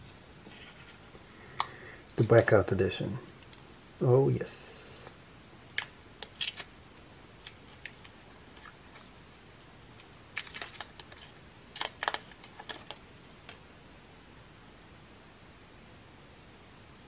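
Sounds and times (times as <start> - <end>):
sharp clicks of wrap peeling: 5.7 - 9.4, 10.0 - 13.0
plastic wrap crinkling: 5.8 - 13.6.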